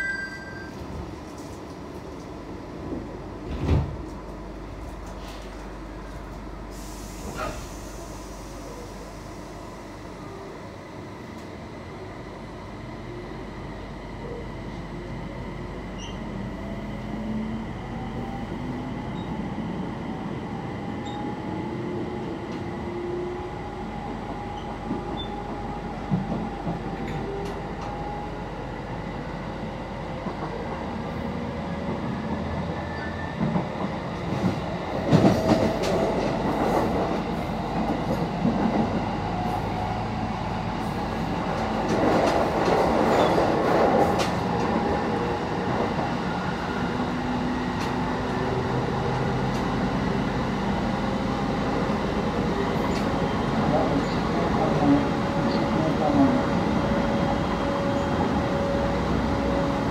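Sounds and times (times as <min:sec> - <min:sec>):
train running rumble: 0:33.4 - 0:59.9.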